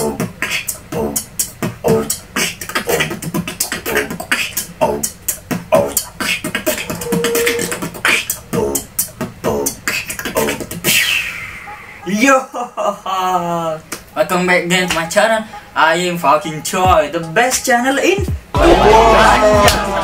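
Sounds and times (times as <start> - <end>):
beatboxer hiss: 0.0 - 11.6
beatboxing: 0.0 - 12.2, 13.8 - 20.0.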